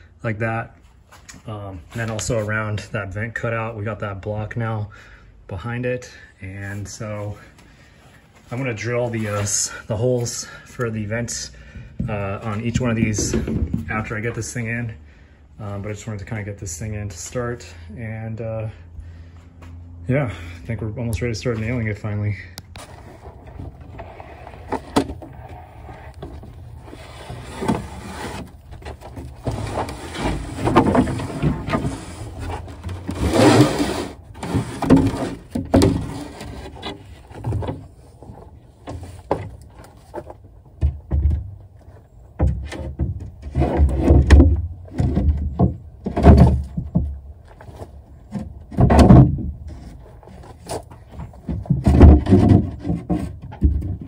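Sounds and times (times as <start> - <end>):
wood scraping on wood: 6.5 - 14.9, 22.7 - 54.0
wooden panel thudding: 48.7 - 49.6.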